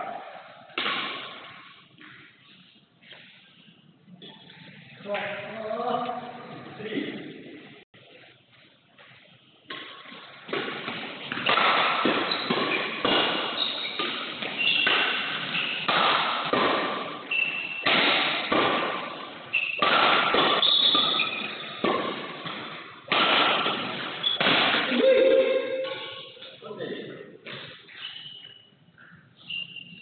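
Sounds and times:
racket hitting shuttlecock: 0.0s - 2.3s, 9.7s - 26.2s
shoes squeaking on court: 10.8s - 15.9s, 17.1s - 17.9s, 19.4s - 22.7s, 23.6s - 24.5s, 27.5s - 30.0s.

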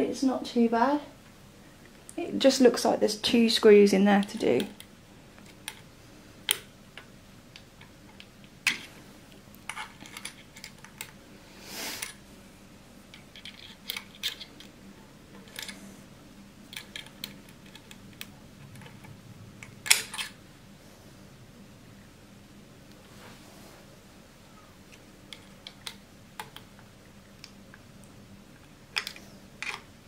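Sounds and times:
handling noise: 4.2s - 11.2s
hex key clicking on metal screws: 13.1s - 14.7s, 16.7s - 19.1s
soft rustle: 22.9s - 25.0s.

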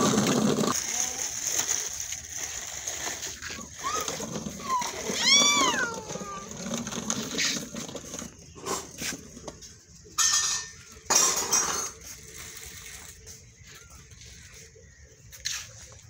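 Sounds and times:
plastic baby walker rattling: 0.0s - 9.6s.

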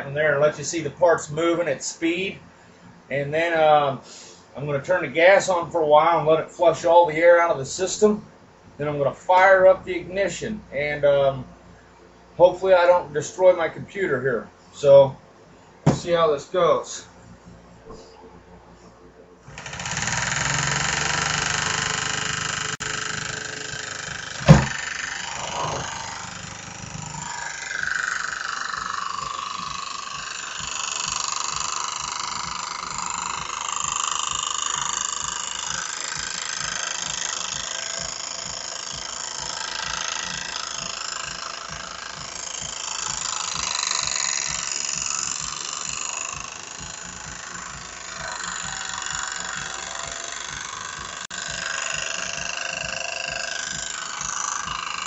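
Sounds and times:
starter motor spinning engine: 19.4s - 55.0s
rapid even ticking: 19.5s - 55.0s.

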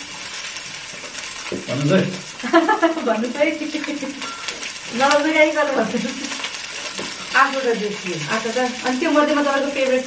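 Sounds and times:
hotpot simmering with sizzling hiss: 0.0s - 10.0s.

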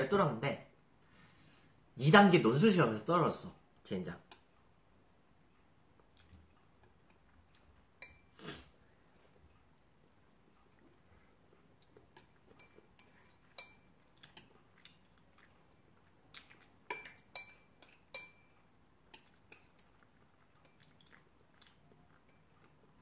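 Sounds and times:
soft chewing: 3.5s - 23.0s
chopsticks clinking against bowl: 12.2s - 14.6s, 16.9s - 19.8s.

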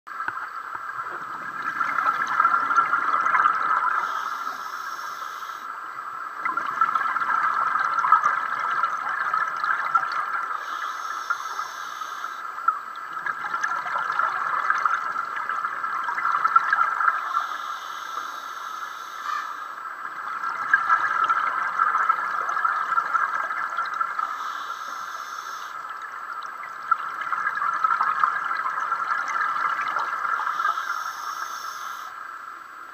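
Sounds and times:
exhaled air bubbling: 0.7s - 32.1s
regulator hiss on inhalation: 4.0s - 5.7s, 10.6s - 12.5s, 17.2s - 19.7s, 24.2s - 25.8s, 30.4s - 32.2s.

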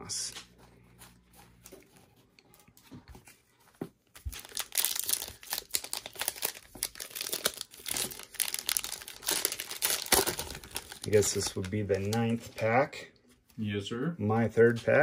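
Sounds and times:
foil wrapper crinkling and tearing: 4.1s - 12.4s.

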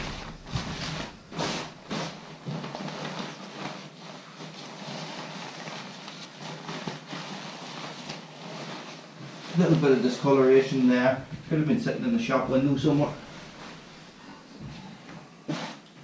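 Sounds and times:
fabric rustling and crinkling: 0.0s - 15.6s.

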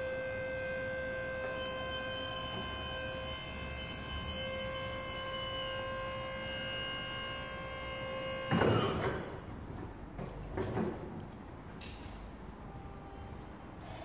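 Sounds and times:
hydraulic pump motor whining: 0.0s - 9.6s.

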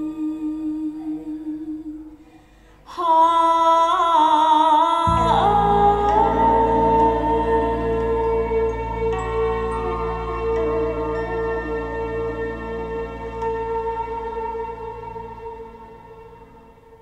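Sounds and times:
person singing: 0.0s - 2.3s, 2.9s - 16.3s
bass and accompaniment: 5.1s - 17.0s
sustained music tones: 5.1s - 17.0s.

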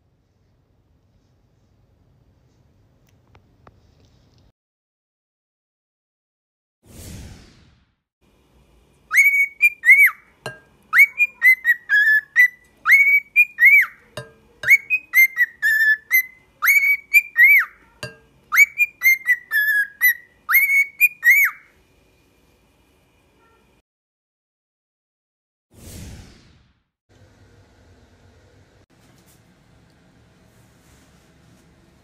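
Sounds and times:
cockatiel whistling a tune: 9.1s - 10.3s, 10.9s - 14.0s, 14.6s - 17.8s, 18.5s - 21.7s.

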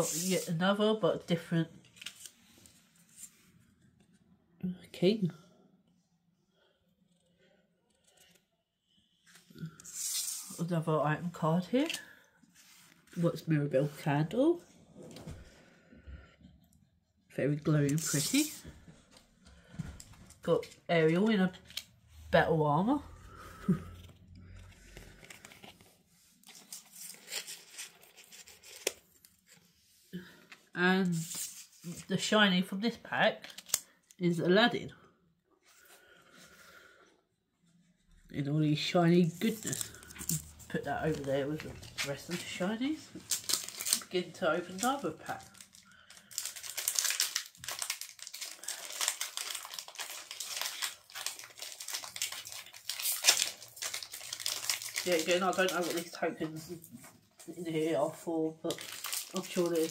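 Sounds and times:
trading cards rustling and sliding: 0.0s - 0.6s, 1.9s - 3.5s, 9.2s - 10.6s, 23.7s - 32.0s, 39.4s - 45.7s
card pack wrapper crinkling: 24.7s - 29.3s, 33.4s - 33.9s, 39.4s - 56.2s, 58.6s - 59.9s.

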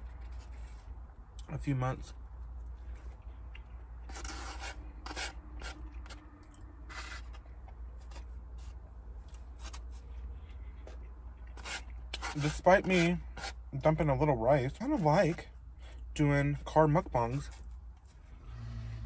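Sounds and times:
utensil scraping food in container: 4.0s - 6.2s, 11.5s - 13.6s
low steady hum: 13.2s - 19.0s.

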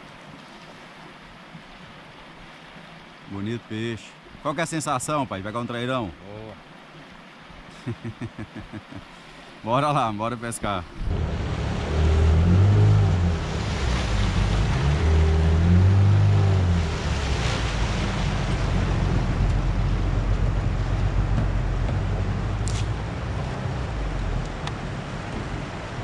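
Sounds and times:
water rushing past: 0.0s - 26.0s
wind buffeting microphone: 10.9s - 26.0s
outboard motor running: 11.0s - 26.0s.

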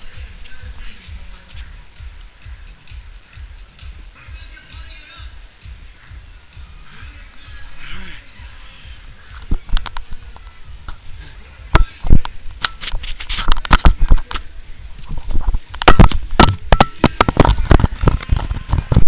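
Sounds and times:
camera handling knocks and rubbing: 12.1s - 14.4s.

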